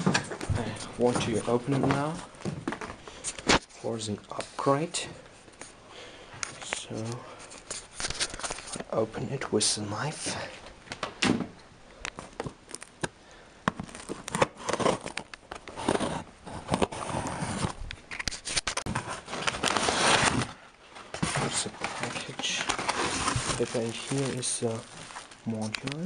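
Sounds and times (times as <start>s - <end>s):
packaging crinkling: 7.4s - 8.9s, 13.8s - 16.2s, 16.8s - 26.0s.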